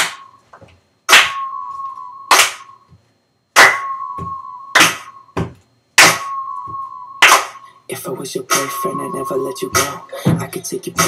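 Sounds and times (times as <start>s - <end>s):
pop song beat with snap hits: 6.0s - 11.0s.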